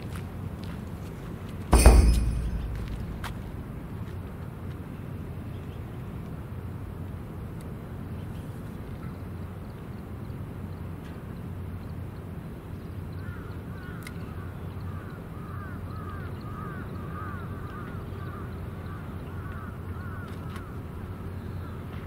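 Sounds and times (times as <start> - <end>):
low outdoor rumble: 0.0 - 8.4.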